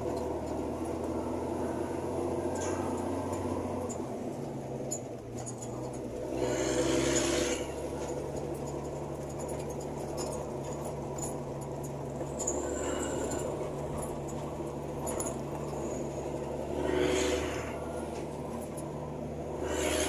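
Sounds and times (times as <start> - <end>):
diesel truck engine running: 0.0 - 20.0
hissing rush: 16.6 - 18.2, 19.5 - 20.0.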